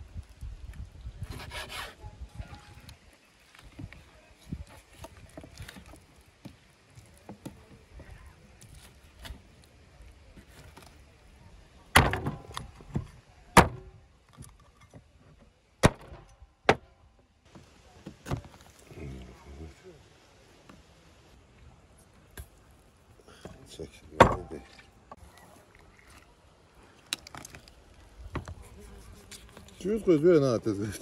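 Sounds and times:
knife sawing against bone: 1.3 - 2.0.

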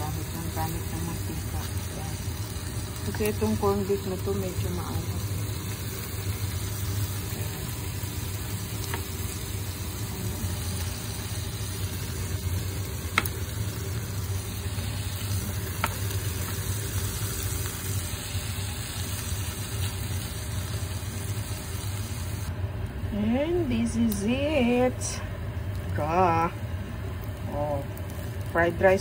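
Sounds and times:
kitchen appliance humming: 0.0 - 29.0.

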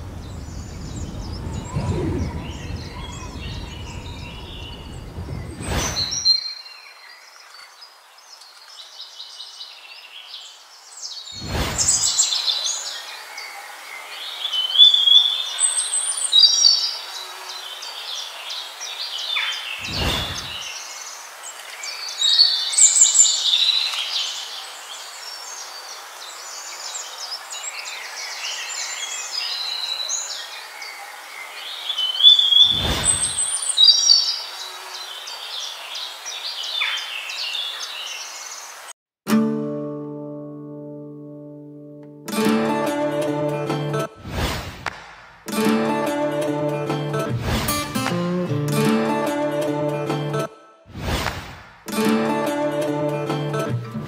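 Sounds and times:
songbirds chirping and trilling: 0.0 - 38.9, 45.5 - 50.5, 52.0 - 54.0
steady background hiss: 0.0 - 38.9
short low whoosh: 0.4 - 6.2, 11.4 - 12.2, 19.8 - 20.7, 32.7 - 33.4, 44.2 - 45.4, 47.3 - 48.0, 50.9 - 51.8.

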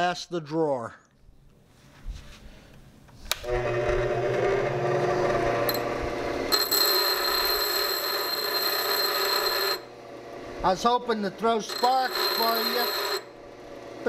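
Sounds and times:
bench grinder humming: 3.4 - 14.0
metal grinding with hiss and ring: 6.5 - 9.9, 11.4 - 13.3.

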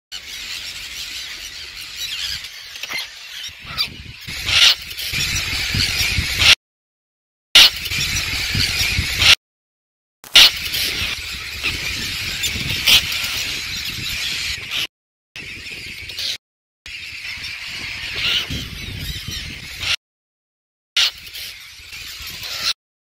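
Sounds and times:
terns calling: 0.1 - 6.6, 10.3 - 20.0
wind rumble on microphone: 3.6 - 6.5, 7.7 - 9.3, 10.5 - 20.0.

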